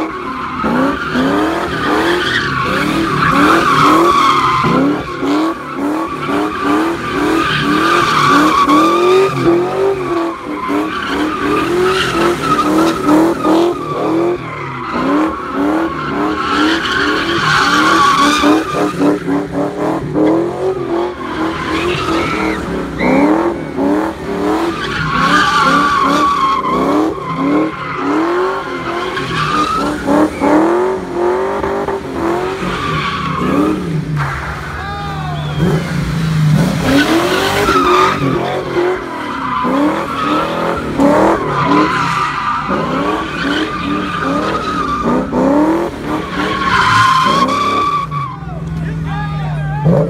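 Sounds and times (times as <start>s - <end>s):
car engine revving: 0.0s - 49.0s
tyres squealing: 20.7s - 23.6s.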